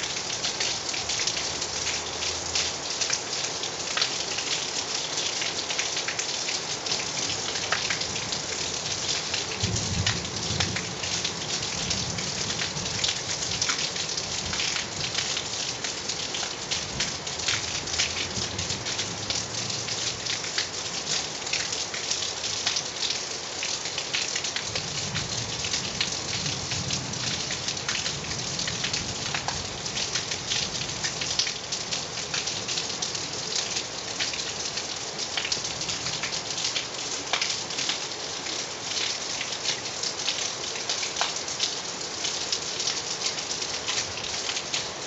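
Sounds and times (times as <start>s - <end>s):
steady rain falling: 0.0s - 45.0s
raindrop hits close by: 9.2s - 16.0s, 24.2s - 32.8s.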